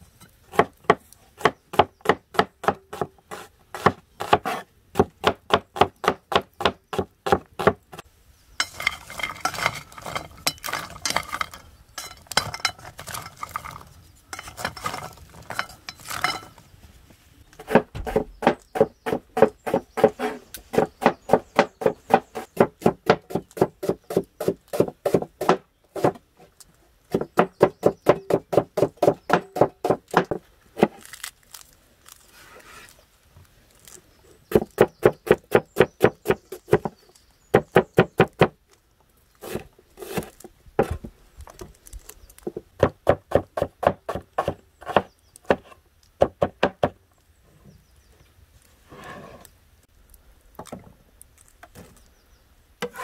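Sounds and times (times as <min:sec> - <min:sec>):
knife chopping on wooden board: 0:00.5 - 0:07.8, 0:17.6 - 0:26.2, 0:42.8 - 0:47.0.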